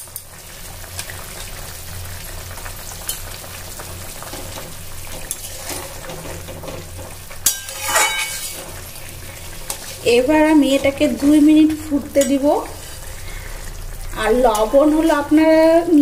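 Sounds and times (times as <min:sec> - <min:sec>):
spatula scraping metal pan: 0:05.1 - 0:11.0.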